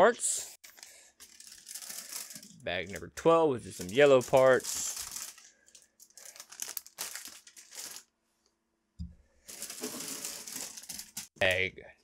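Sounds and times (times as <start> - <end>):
plastic bags crinkling: 0.6 - 3.1, 3.7 - 8.2, 9.5 - 11.4.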